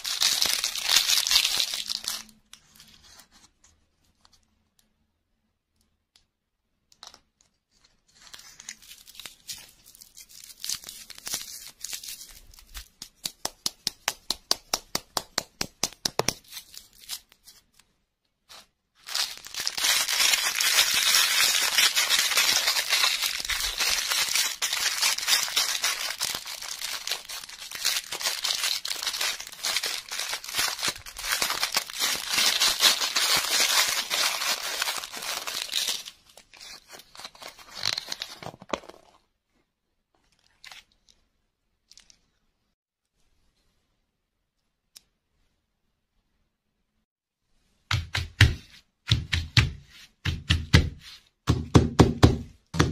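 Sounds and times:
plastic wrapper crinkling and tearing: 0.0 - 3.3, 7.0 - 13.0, 18.5 - 39.2, 40.2 - 41.2.

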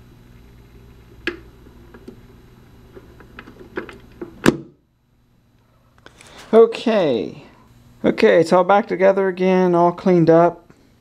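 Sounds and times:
turntable low hum: 0.0 - 11.0
sharp clicks and knocks: 1.2 - 2.2.

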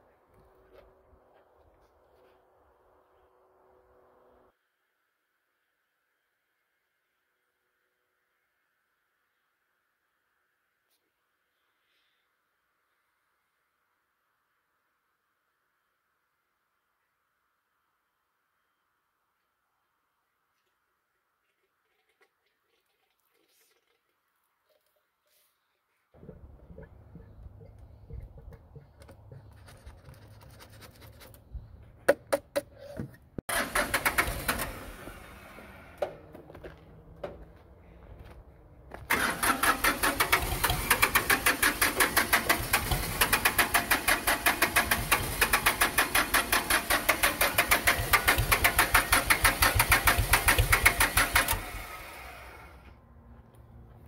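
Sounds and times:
diesel engine cranking: 26.2 - 29.6, 33.5 - 37.2, 38.9 - 53.0.

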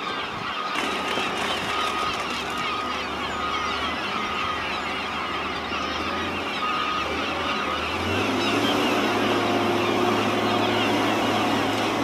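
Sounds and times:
gulls calling: 0.0 - 12.0
engine drone: 0.2 - 12.0.

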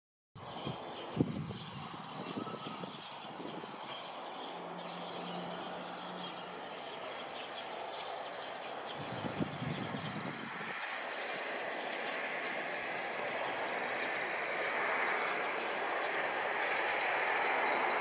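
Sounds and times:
city background noise: 0.4 - 18.0.

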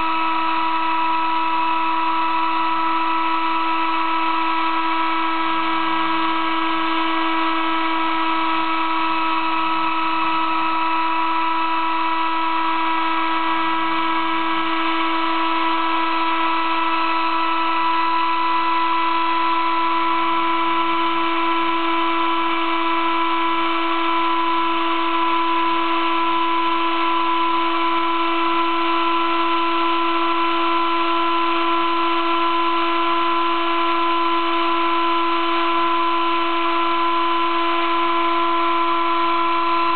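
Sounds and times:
spindle high-pitched whine: 0.0 - 39.9.

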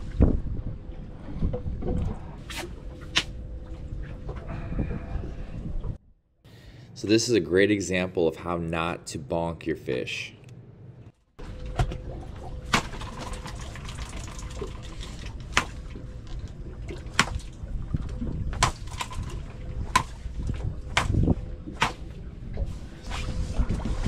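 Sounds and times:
water sloshing and splashing: 0.0 - 6.0, 11.4 - 24.0.

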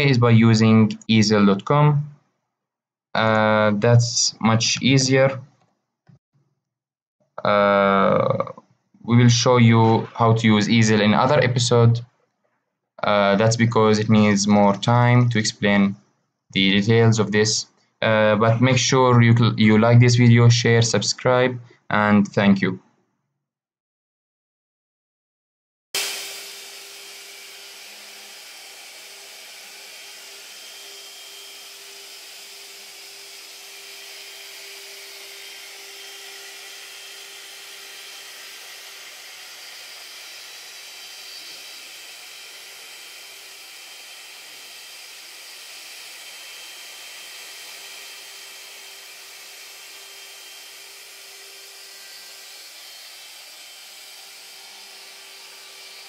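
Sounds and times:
router spindle engraving wood: 26.0 - 56.0.

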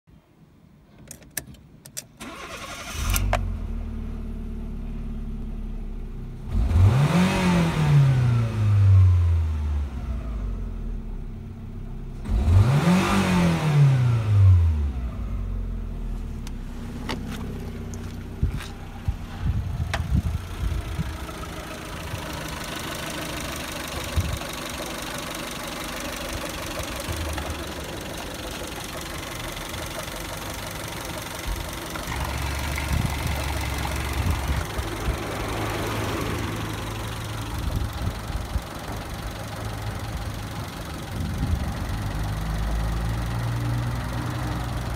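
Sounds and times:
ignition key clicks: 0.9 - 3.4
car engine starting and revving: 2.2 - 44.9.

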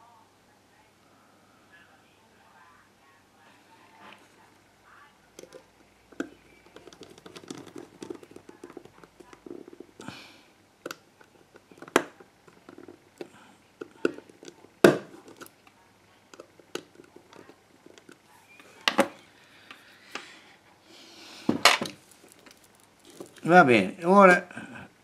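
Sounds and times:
small plastic clicks and knocks: 5.4 - 10.0
rustling: 21.2 - 23.8.

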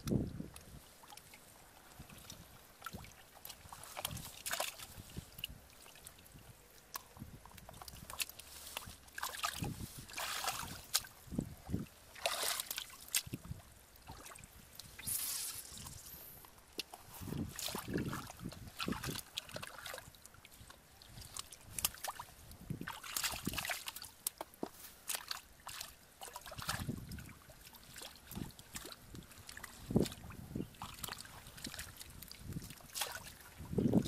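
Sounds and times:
hands splashing in muddy water: 0.5 - 16.1, 16.7 - 34.0.

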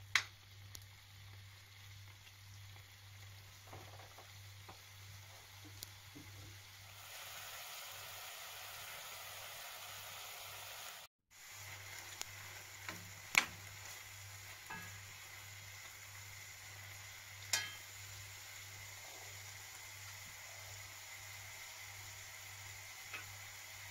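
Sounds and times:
bacon sizzling in a pan: 0.0 - 23.9.

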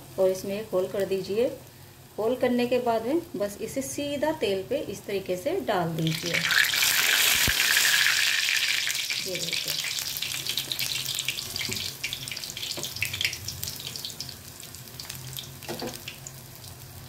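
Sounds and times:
food deep-frying in oil: 5.3 - 17.0.

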